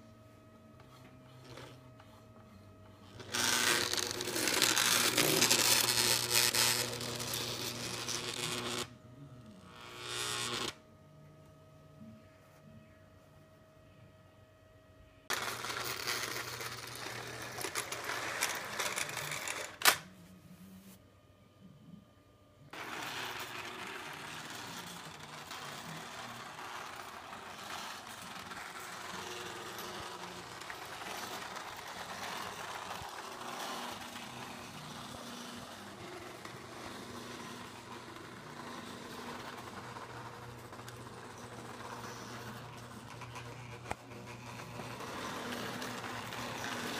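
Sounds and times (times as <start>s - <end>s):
small electric motor humming: 0.9s - 10.9s, 22.7s - 46.9s.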